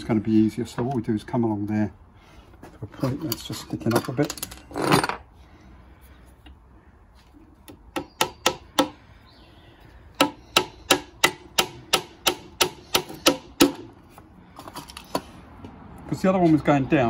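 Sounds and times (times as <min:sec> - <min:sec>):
hammer striking nail into wood: 0:07.9 - 0:09.0, 0:10.2 - 0:13.9.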